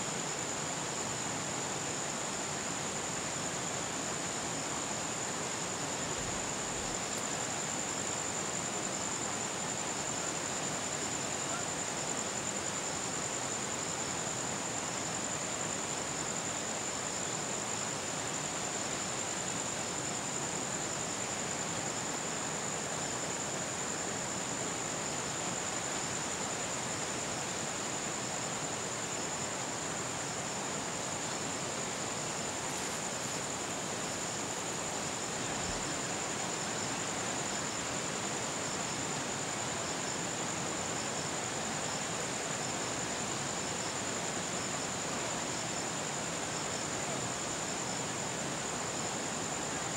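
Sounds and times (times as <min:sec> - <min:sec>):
constant high-pitched whine: 0:00.0 - 0:49.9.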